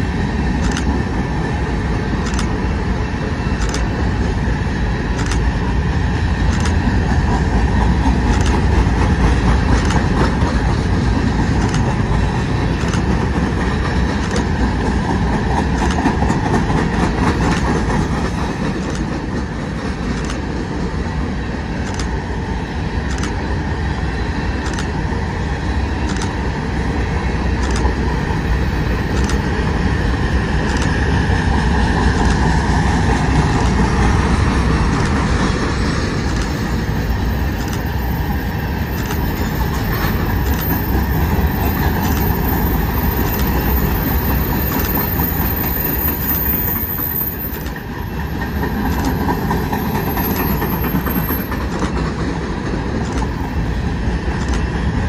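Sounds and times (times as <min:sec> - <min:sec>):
steel wheels rumbling on rail: 0:00.0 - 0:55.0
sharp click of rail: 0:00.6 - 0:01.1, 0:02.2 - 0:02.6, 0:03.5 - 0:04.0, 0:05.1 - 0:05.5, 0:06.5 - 0:06.8, 0:07.4 - 0:13.4, 0:15.6 - 0:20.6, 0:21.7 - 0:22.3, 0:23.0 - 0:23.5, 0:26.0 - 0:26.5, 0:27.6 - 0:28.2, 0:29.0 - 0:29.7, 0:32.0 - 0:38.0, 0:47.1 - 0:53.5, 0:54.3 - 0:54.8.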